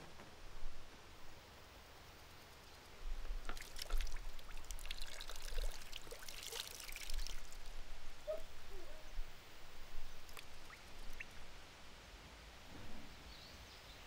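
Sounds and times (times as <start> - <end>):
water trickling onto hands: 3.4 - 8.8, 9.8 - 11.5.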